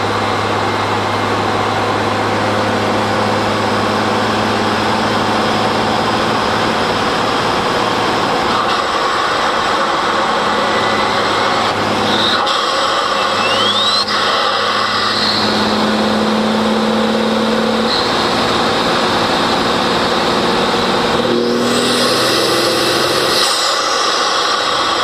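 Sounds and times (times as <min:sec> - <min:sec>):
engine intake hum: 0:00.0 - 0:25.0
rushing air: 0:20.8 - 0:25.0.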